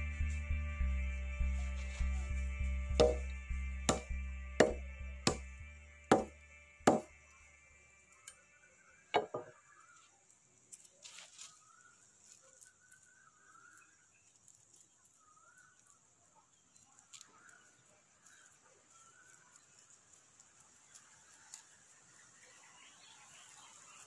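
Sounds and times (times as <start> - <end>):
knife striking battery: 3.0 - 3.3, 3.9 - 5.5, 6.1 - 7.1.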